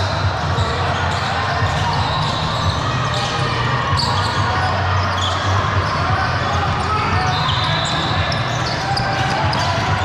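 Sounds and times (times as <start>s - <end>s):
spectators' voices: 0.0s - 10.0s.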